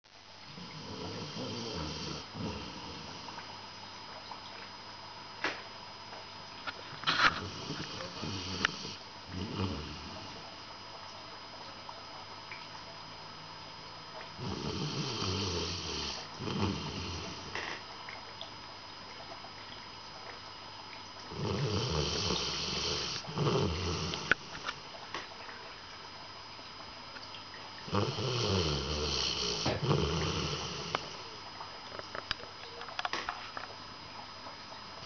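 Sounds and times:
dog snoring: 0.5 - 3.4, 7.0 - 10.4, 14.4 - 17.8, 21.3 - 24.8, 27.8 - 31.4.

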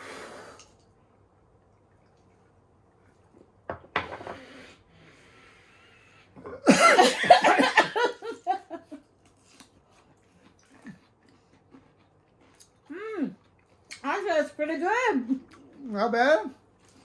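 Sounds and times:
harsh exhale: 0.0 - 0.8, 4.2 - 6.4
laughter: 6.7 - 9.1.

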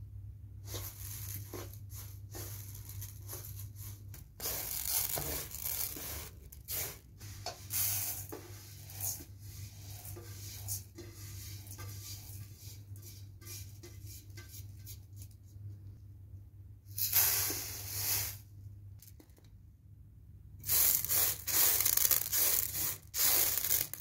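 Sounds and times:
rice rustling on metal tray: 0.6 - 15.3, 20.7 - 24.0
rice pouring into metal bowl: 20.7 - 24.0.

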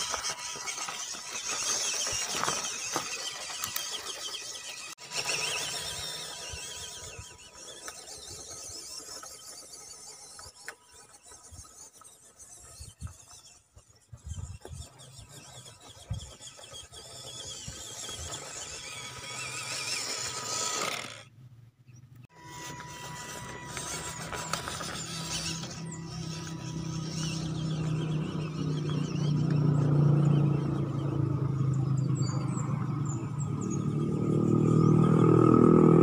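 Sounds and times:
small electric motor whining: 0.0 - 21.3, 22.3 - 36.0.

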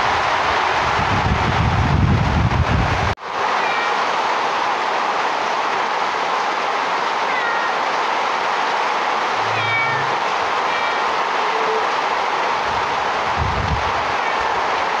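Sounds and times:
rain hissing: 0.0 - 15.0
kitten meowing: 9.4 - 11.0.

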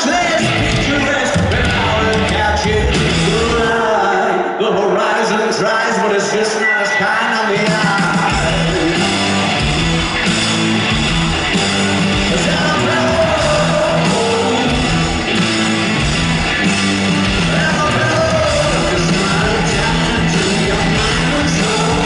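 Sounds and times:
bass: 0.0 - 4.0, 7.6 - 22.0
drums: 0.0 - 4.2, 7.3 - 22.0
guitars: 0.0 - 4.4, 6.6 - 22.0
man singing into a microphone: 0.0 - 9.2, 12.3 - 15.1, 17.4 - 22.0.

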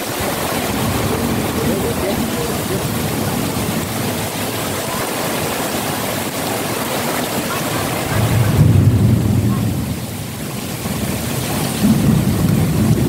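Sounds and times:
heavy rain pouring: 0.0 - 13.0.

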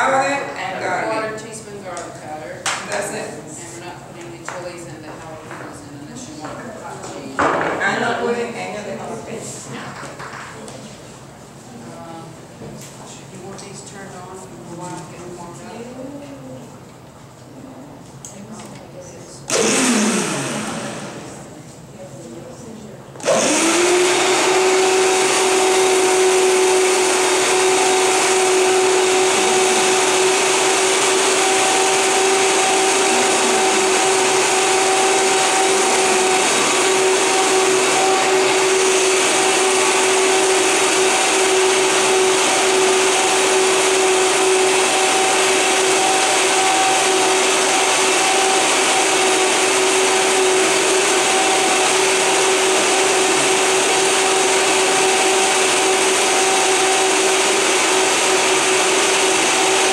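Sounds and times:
blender motor whining: 19.5 - 21.5, 23.2 - 59.9.

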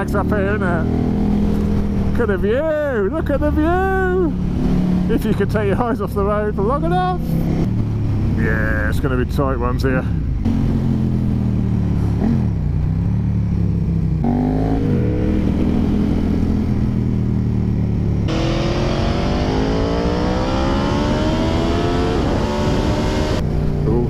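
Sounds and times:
motorcycle engine accelerating: 0.0 - 2.9, 3.7 - 8.8, 10.3 - 24.0
motorcycle engine: 0.0 - 24.0
wind rush on microphone: 20.5 - 23.8.

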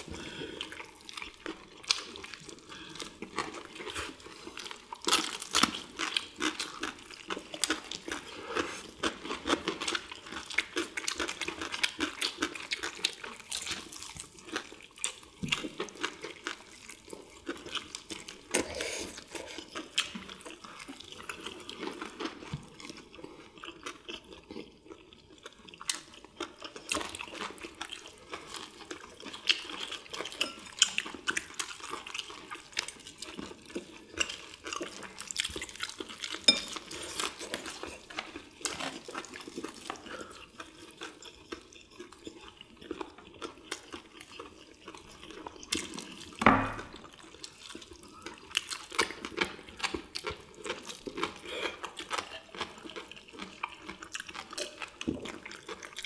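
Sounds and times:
wet chewing and lip smacking: 0.6 - 56.0
dishes clinking: 36.5 - 36.8.

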